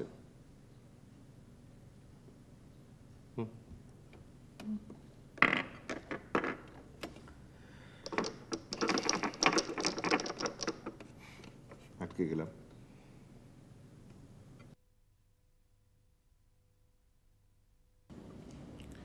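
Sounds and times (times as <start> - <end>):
glass marbles clicking on wood: 8.0 - 11.0.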